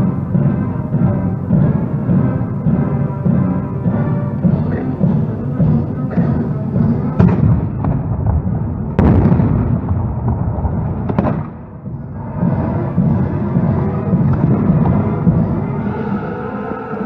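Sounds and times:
drum-led music: 0.0 - 17.0
cannon and musket gunfire: 7.2 - 11.9.

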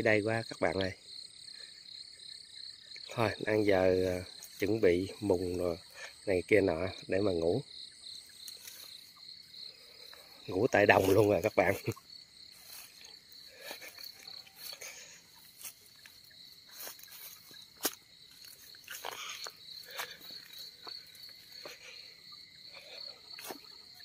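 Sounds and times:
insects trilling: 0.0 - 24.0
footsteps through dry grass: 3.4 - 6.2, 8.1 - 24.0.

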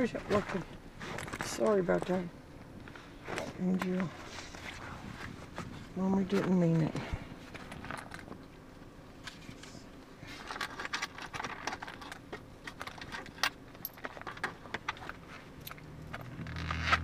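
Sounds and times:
zipper and contents rattling: 10.2 - 17.0.

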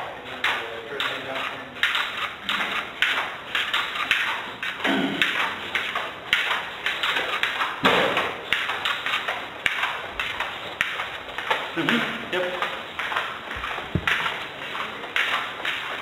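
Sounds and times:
taps and thumps over telephone: 13.6 - 14.3.

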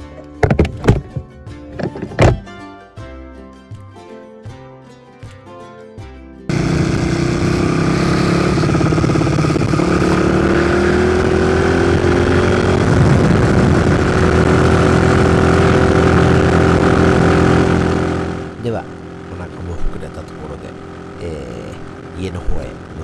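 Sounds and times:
minibike engine running: 6.5 - 23.0.

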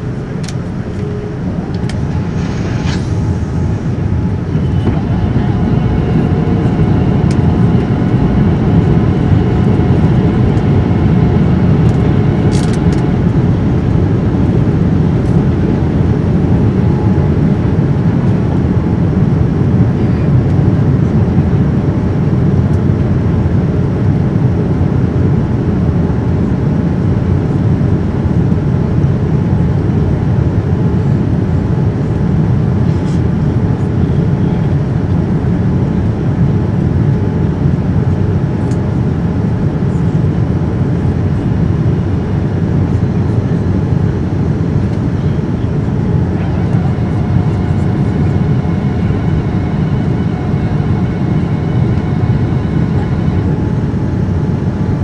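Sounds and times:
airplane cabin airflow rush: 0.0 - 55.0
faint steady engine tones: 0.0 - 55.0.

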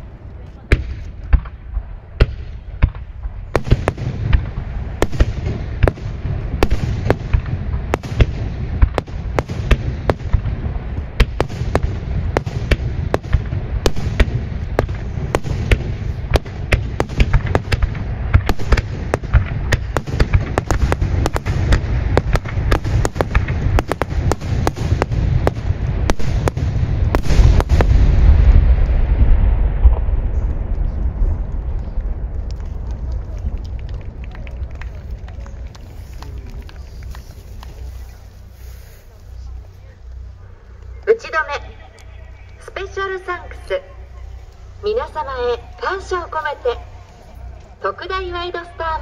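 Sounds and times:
fireworks bangs: 0.0 - 49.0
low rumble: 0.0 - 49.0.

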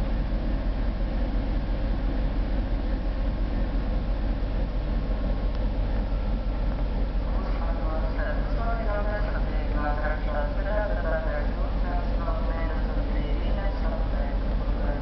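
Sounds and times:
diesel locomotive engine idling: 0.0 - 15.0.

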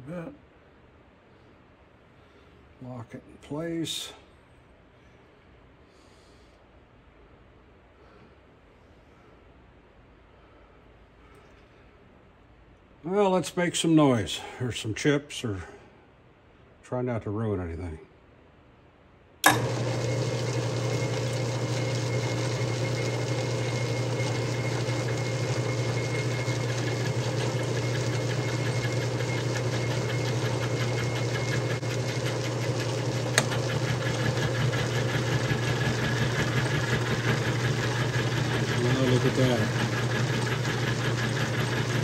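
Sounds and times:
lathe motor humming: 19.4 - 42.0.

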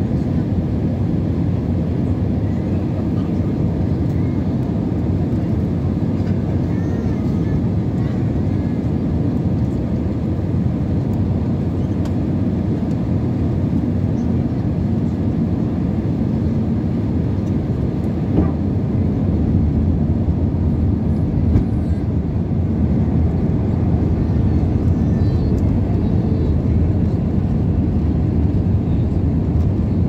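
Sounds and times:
jet engines rumbling: 0.0 - 30.0.

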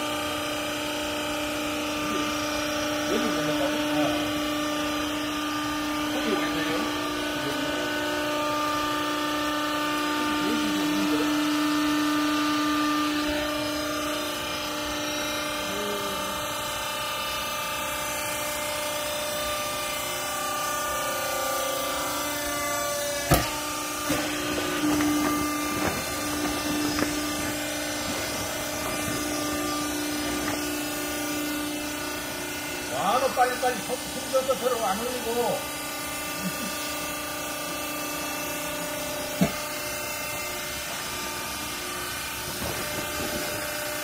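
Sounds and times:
hydraulic motor and pump humming: 0.0 - 44.0
sharp knocks: 23.2 - 27.4.

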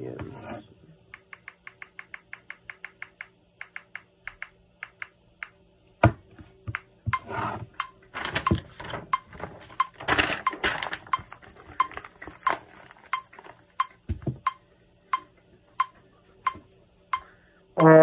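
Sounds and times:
metronome clicks: 1.2 - 5.6, 11.8 - 18.0.

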